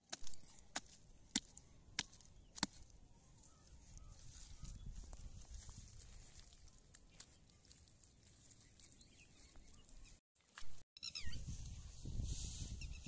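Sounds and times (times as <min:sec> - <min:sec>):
small crackles: 0:04.3 - 0:10.6.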